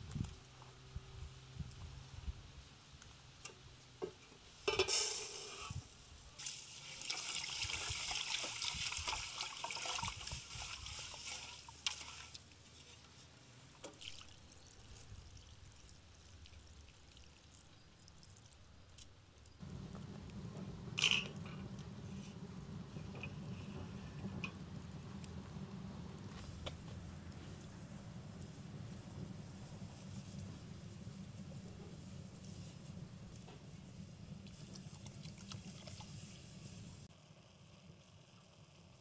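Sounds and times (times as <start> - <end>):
metal pot clanking on grill: 4.7 - 5.7
rice sloshing being rinsed: 6.4 - 12.8
water pouring into a pot: 6.5 - 12.3
wood fire burning: 19.6 - 37.1.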